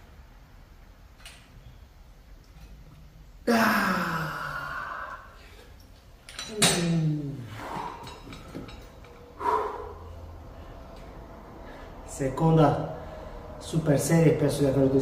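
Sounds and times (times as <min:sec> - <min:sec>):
man groaning with strain: 0:03.4 - 0:05.6, 0:06.5 - 0:08.0
man exhaling heavily: 0:03.5 - 0:05.7, 0:07.2 - 0:08.2, 0:09.4 - 0:10.3.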